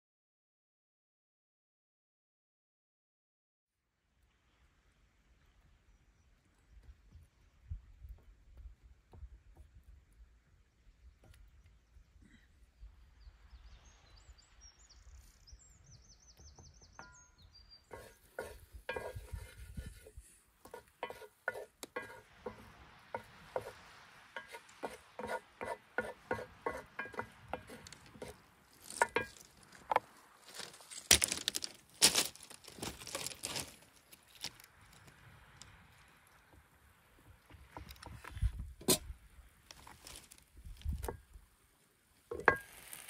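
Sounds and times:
food handled on wooden cutting board: 17.9 - 22.6.

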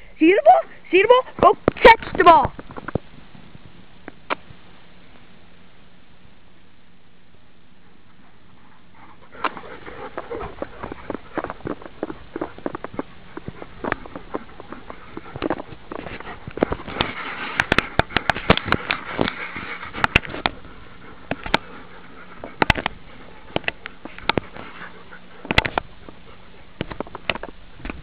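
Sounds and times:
dogs panting: 7.8 - 28.0
dogs scuffling: 8.1 - 28.0
sharp clicks and knocks: 9.4 - 20.6, 21.2 - 21.7, 22.4 - 24.6, 25.4 - 26.2, 26.8 - 28.0.

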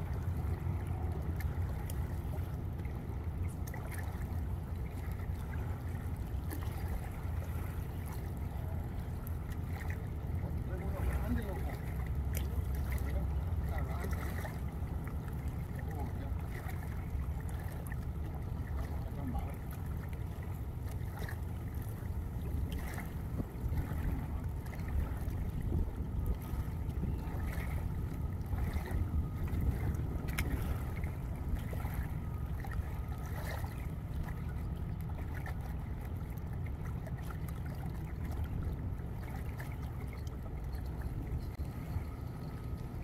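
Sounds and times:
river water at shoreline: 0.0 - 43.0
wind buffeting microphone: 13.8 - 43.0.

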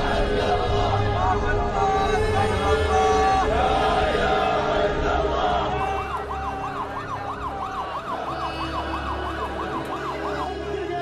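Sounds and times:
ambulance siren yelping: 5.7 - 11.0.

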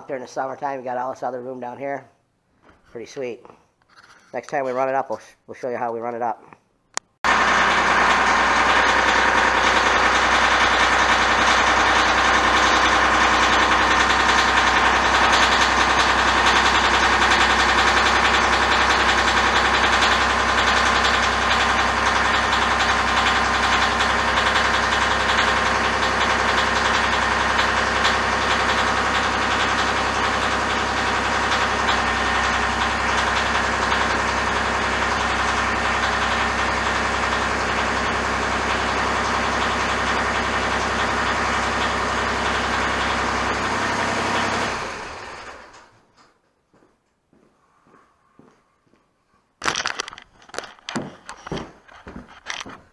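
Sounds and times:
tractor engine running: 7.2 - 45.9.

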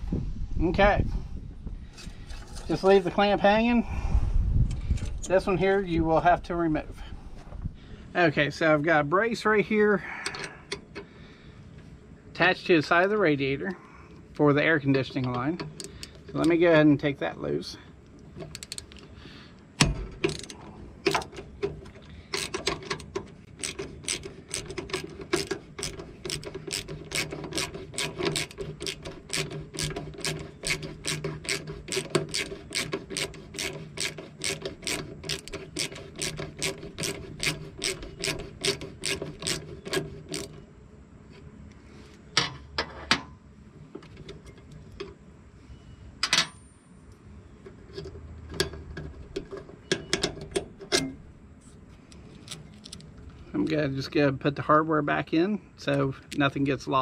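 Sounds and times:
hand ratchet clicking: 22.3 - 40.5.

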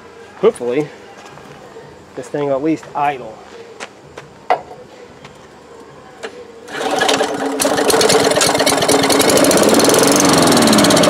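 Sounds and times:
lawn mower engine starting and revving: 6.7 - 11.0.

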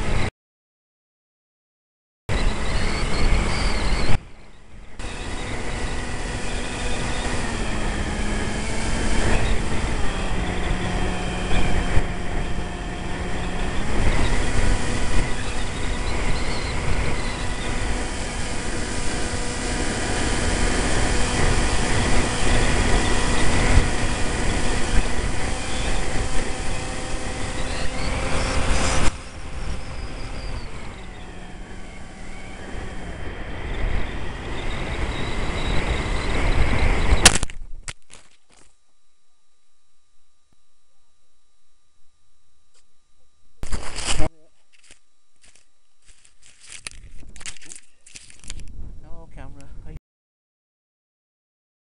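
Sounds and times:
electric motor and propeller whine: 0.0 - 0.3, 2.3 - 48.7
wind rushing over microphone: 2.3 - 37.8, 48.6 - 50.0.

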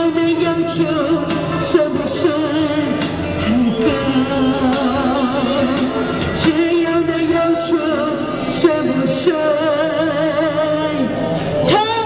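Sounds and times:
backing track music: 0.0 - 12.0
woman singing into a microphone: 0.0 - 12.0.

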